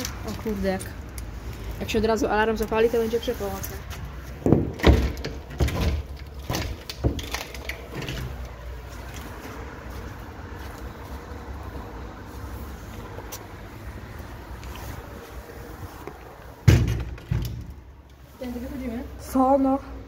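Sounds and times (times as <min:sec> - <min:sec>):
knocks and scrapes against wood: 0:02.8 - 0:09.7.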